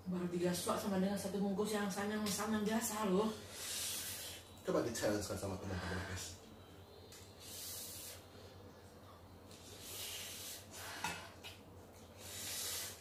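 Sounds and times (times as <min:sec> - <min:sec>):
sharp breaths hissed through mouth: 0:07.4 - 0:08.4, 0:09.5 - 0:11.4, 0:12.2 - 0:13.0.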